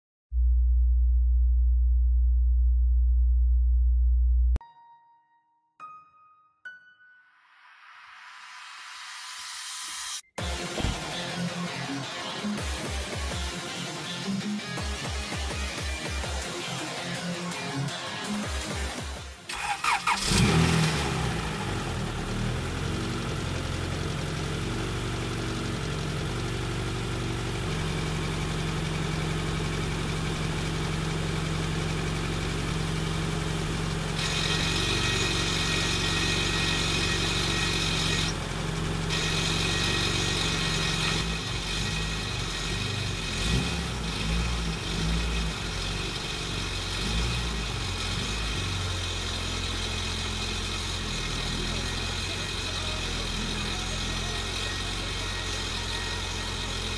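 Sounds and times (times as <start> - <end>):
car engine idling: 19.5 - 56.9.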